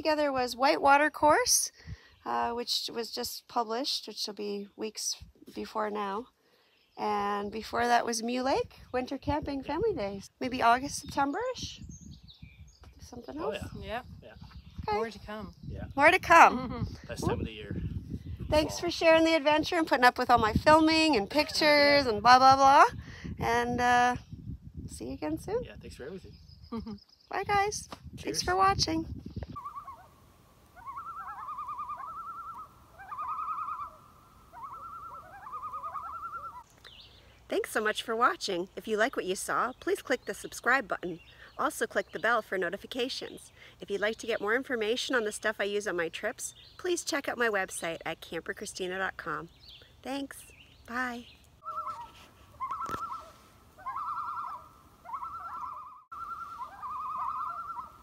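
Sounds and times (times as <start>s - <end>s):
loon tremolo call: 29.6s - 36.7s, 51.6s - 58.0s.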